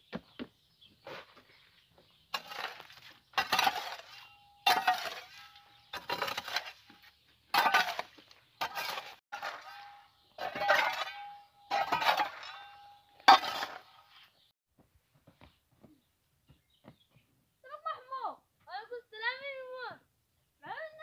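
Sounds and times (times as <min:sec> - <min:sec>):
hoe chopping gravelly soil: 0:02.3 - 0:14.5.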